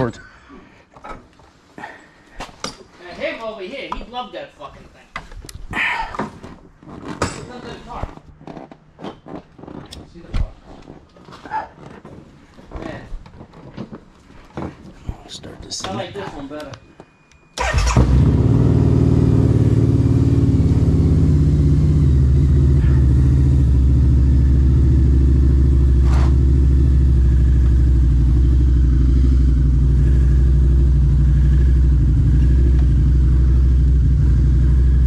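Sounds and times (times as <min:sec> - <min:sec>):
motorcycle engine starting and idling: 0:17.6 - 0:35.0.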